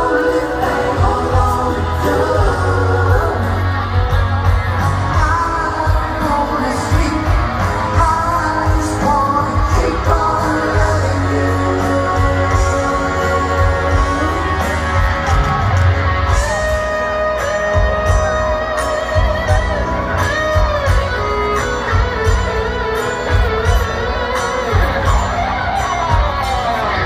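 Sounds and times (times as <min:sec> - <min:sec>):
lead singer vocals: 0:00.0 - 0:16.0
bass line: 0:00.0 - 0:27.0
live rock band: 0:00.0 - 0:27.0.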